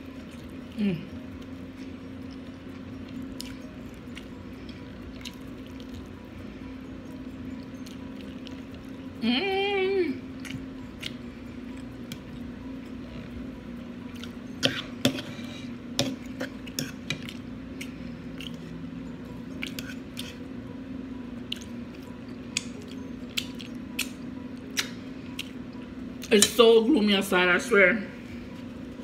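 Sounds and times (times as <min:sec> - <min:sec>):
wavering hum: 0:00.0 - 0:29.0
chewing and lip-smacking: 0:16.2 - 0:18.8, 0:21.4 - 0:26.3.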